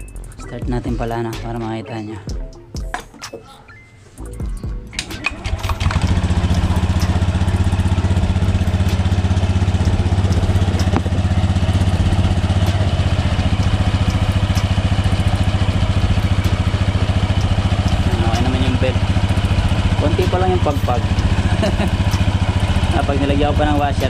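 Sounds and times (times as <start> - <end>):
scooter engine idling: 4.4 - 24.0
drive belt and pulleys running: 4.8 - 24.0.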